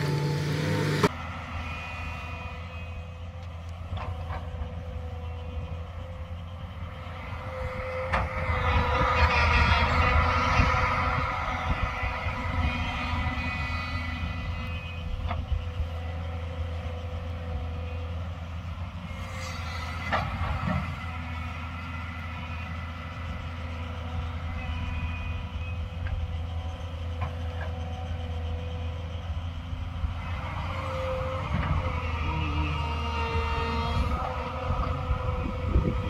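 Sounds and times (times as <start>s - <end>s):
excavator diesel engine droning: 0.0s - 36.0s.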